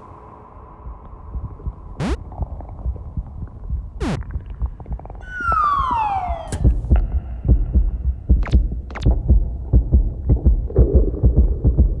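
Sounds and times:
low throbbing rumble: 0:00.4 - 0:12.0
falling whistle: 0:05.2 - 0:06.7.

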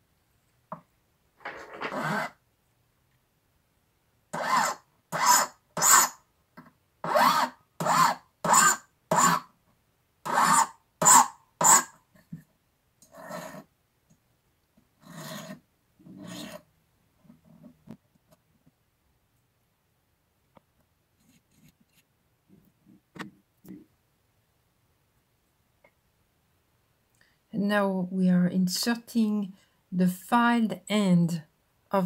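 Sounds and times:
hand file strokes on wire: 0:01.9 - 0:02.4, 0:04.4 - 0:06.2, 0:07.0 - 0:09.5, 0:10.3 - 0:12.3, 0:13.0 - 0:13.7, 0:14.9 - 0:16.7.

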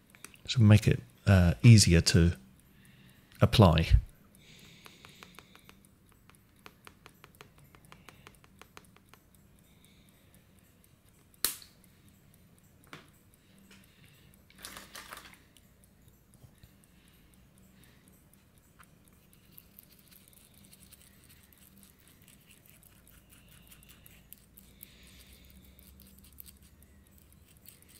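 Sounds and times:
finger tapping vial: 0:04.5 - 0:09.3
sharp click: 0:11.2 - 0:11.8.

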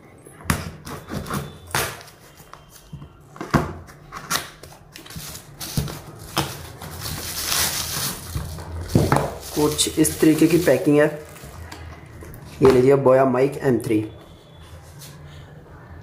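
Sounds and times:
plastic packaging rustling: 0:01.5 - 0:13.0
cardboard crinkling: 0:04.1 - 0:12.6.

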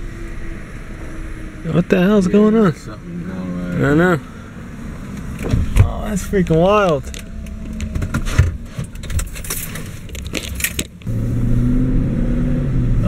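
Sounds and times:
vehicle engine hum: 0:00.0 - 0:13.0
rattling and clicking in a car: 0:05.1 - 0:11.2.

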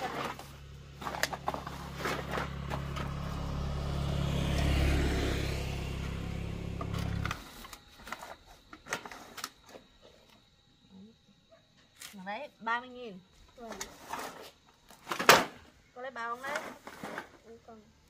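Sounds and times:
engine humming: 0:00.0 - 0:07.8.

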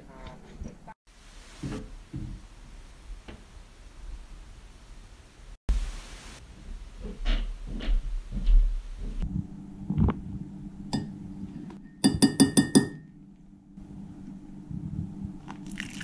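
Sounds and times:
teaspoon tapping ceramic mug: 0:12.0 - 0:13.0.

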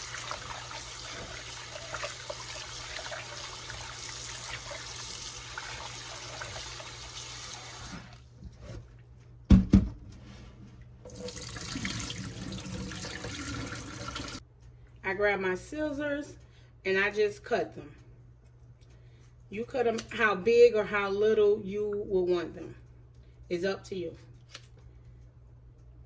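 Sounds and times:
tap water running into a steel bowl: 0:00.0 - 0:08.2, 0:11.1 - 0:14.4.

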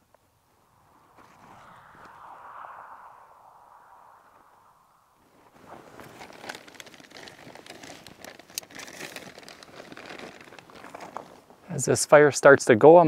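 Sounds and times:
plastic bag crinkling: 0:06.0 - 0:11.4.

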